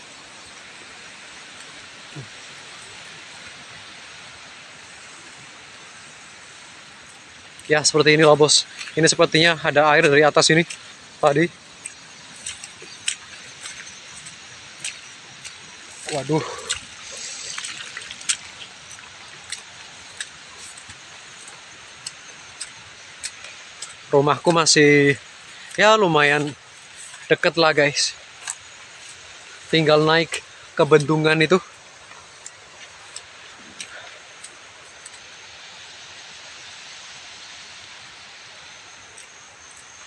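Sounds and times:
rain hissing: 0:00.0 - 0:40.0
faint ticks: 0:07.0 - 0:24.6, 0:28.2 - 0:35.4, 0:38.9 - 0:40.0.

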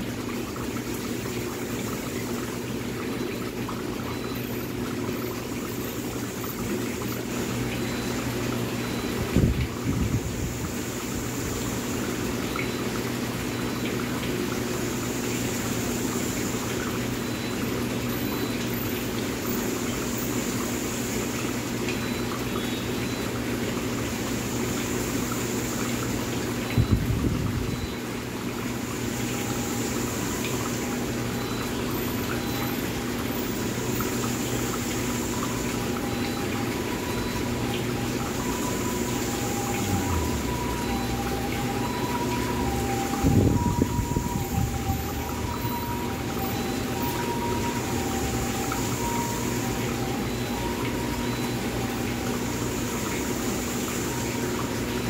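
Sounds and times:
aquarium air bubbling: 0:00.0 - 0:55.0.

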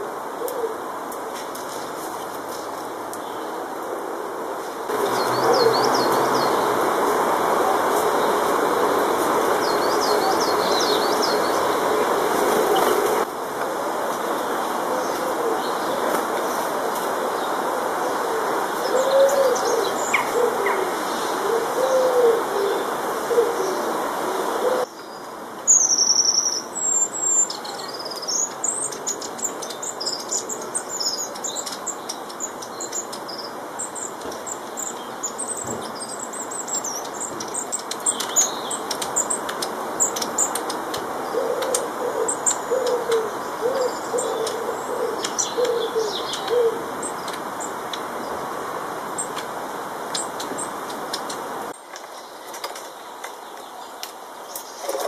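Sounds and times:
steady background noise: 0:00.0 - 0:55.0
small birds chirping: 0:04.9 - 0:07.2, 0:09.2 - 0:13.3, 0:24.8 - 0:48.4, 0:49.1 - 0:55.0
pigeon cooing: 0:05.0 - 0:06.1, 0:16.7 - 0:24.9, 0:41.3 - 0:46.9.

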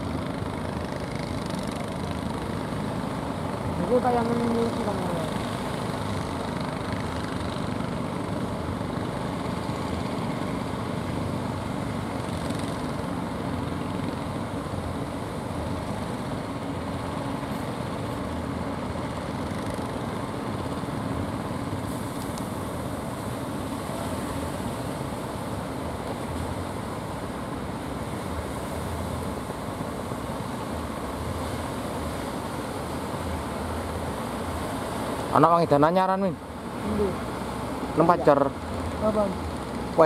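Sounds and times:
boat engines droning: 0:00.0 - 0:40.0
waves breaking: 0:00.0 - 0:40.0.

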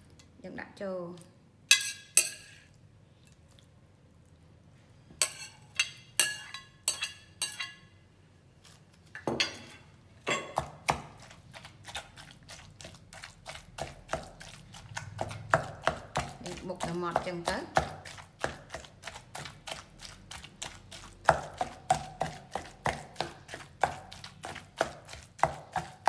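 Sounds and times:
dishware clinking: 0:09.3 - 0:10.6
pestle pounding in wooden mortar: 0:10.5 - 0:26.0.

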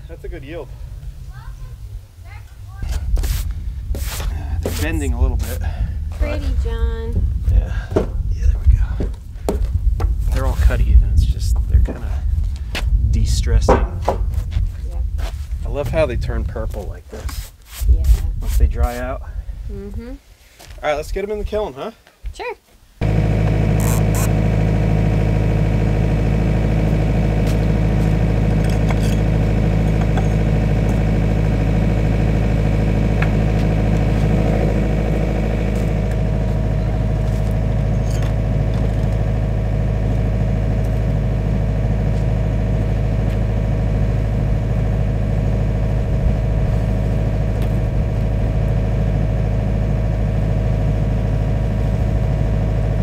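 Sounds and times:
diesel engine idling: 0:23.0 - 0:53.0.

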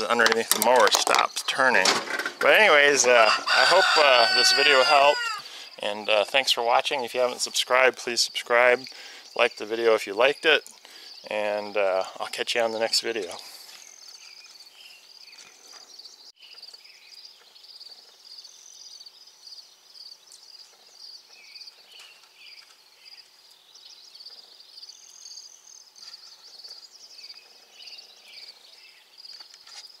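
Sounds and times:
insects trilling: 0:02.4 - 0:15.4.

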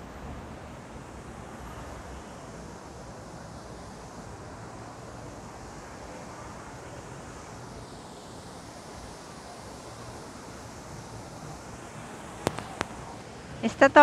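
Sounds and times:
city background rumble: 0:00.0 - 0:14.0.

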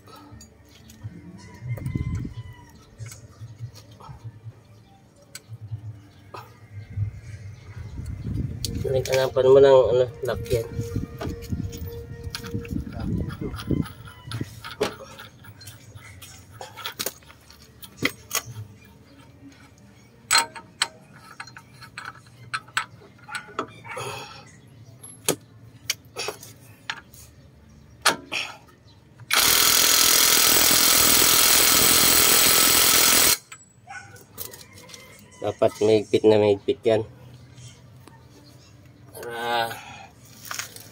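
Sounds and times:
metal tools clinking: 0:11.7 - 0:23.9
impact wrench running: 0:29.3 - 0:33.5.

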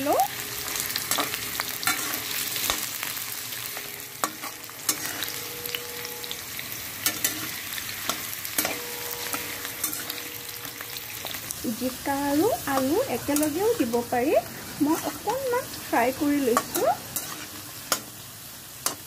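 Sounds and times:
potatoes sizzling in hot oil: 0:00.0 - 0:19.0
metal spatula scraping a pan: 0:00.5 - 0:18.2.

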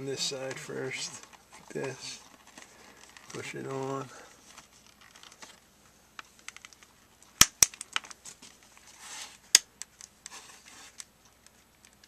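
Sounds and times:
sharp plastic snaps: 0:06.2 - 0:08.2, 0:09.5 - 0:10.3.

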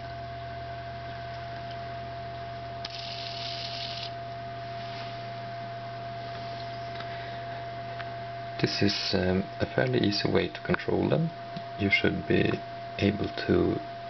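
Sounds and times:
steady hum: 0:00.0 - 0:14.0
servos whirring: 0:02.8 - 0:04.1.

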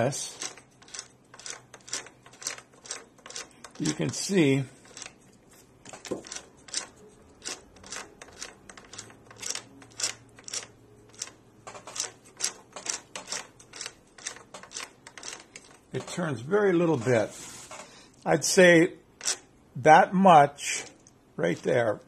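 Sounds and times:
lathe handwheel clicking: 0:00.3 - 0:05.2, 0:05.8 - 0:16.2.

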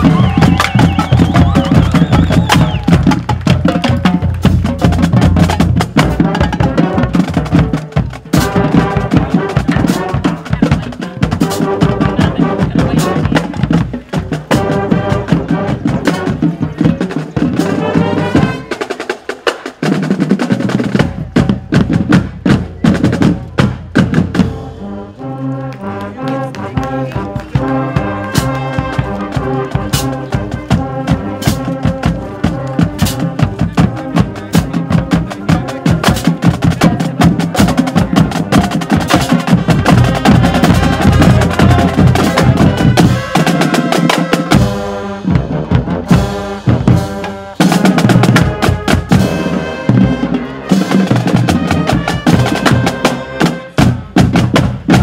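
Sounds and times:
marching drumline: 0:00.0 - 0:55.0
brass playing sustained melody: 0:08.3 - 0:10.6, 0:11.4 - 0:13.5, 0:14.5 - 0:16.6, 0:17.6 - 0:18.8, 0:24.4 - 0:36.1, 0:39.1 - 0:53.9.

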